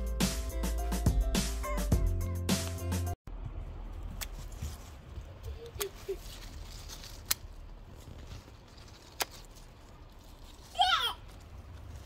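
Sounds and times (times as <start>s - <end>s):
scissors snipping stems: 4.1s - 4.6s, 5.5s - 7.7s, 8.7s - 9.7s.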